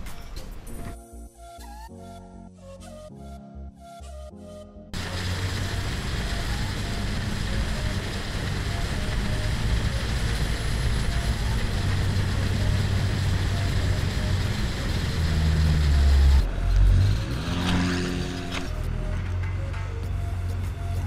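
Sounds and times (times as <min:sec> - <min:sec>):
boat engine running: 0:05.0 - 0:19.4.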